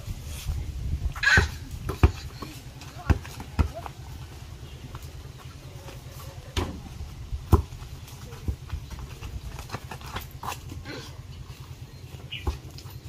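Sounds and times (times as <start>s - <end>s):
basketball bouncing: 1.2s - 4.2s, 6.5s - 10.4s.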